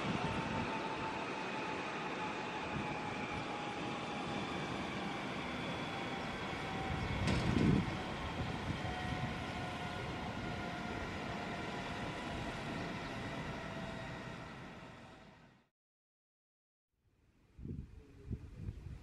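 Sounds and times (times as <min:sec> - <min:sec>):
helicopter turbine whine: 0:00.0 - 0:15.7.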